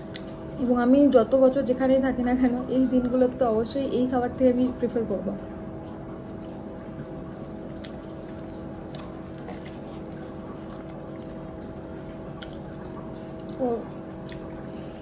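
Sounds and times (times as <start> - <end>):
wet mouth clicks: 0.0 - 0.3, 7.8 - 8.1, 12.4 - 13.6, 14.2 - 14.7
steady tonal hum: 0.0 - 15.0
person chewing food: 6.3 - 7.2, 7.8 - 13.6, 14.2 - 15.0.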